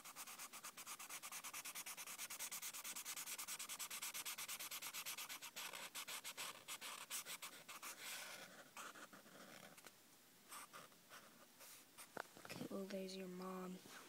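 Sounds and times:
marker scribbling on paper: 0.0 - 9.8.

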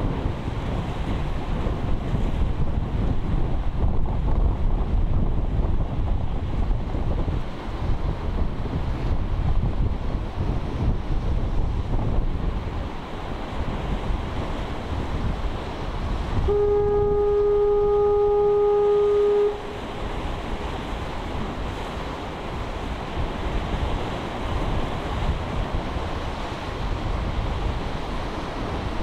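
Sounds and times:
surf washing against rocks: 0.0 - 29.0
foghorn blast: 16.4 - 19.9.

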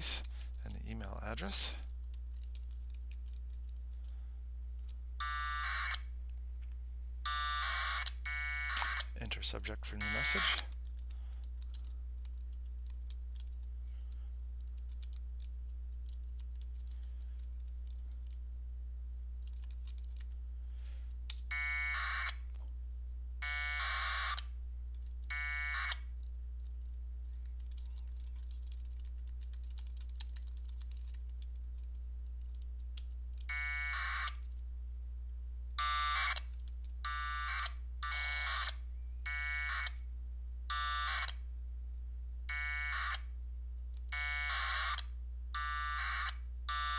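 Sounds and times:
steady low hum: 0.0 - 46.9
keyboard typing clicks: 1.8 - 4.1, 10.2 - 13.7, 14.6 - 18.4, 26.2 - 33.5
buzzing radio data bursts: 8.6 - 10.7.

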